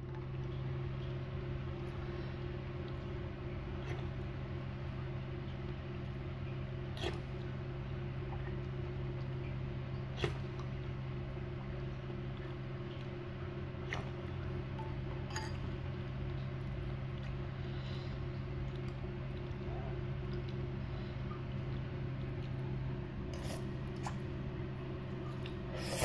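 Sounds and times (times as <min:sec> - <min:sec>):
steady low hum: 0:00.0 - 0:26.0
metal cutlery clinking on ceramic bowl: 0:15.3 - 0:15.6.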